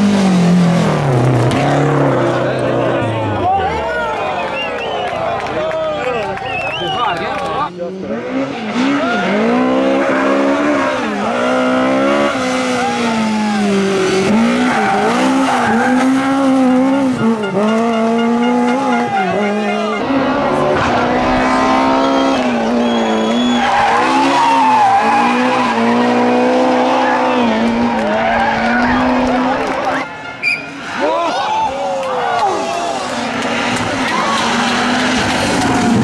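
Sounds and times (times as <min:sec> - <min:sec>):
rally car engines revving: 0:00.0 - 0:36.0
tyre squeal: 0:21.7 - 0:26.0, 0:30.4 - 0:31.7.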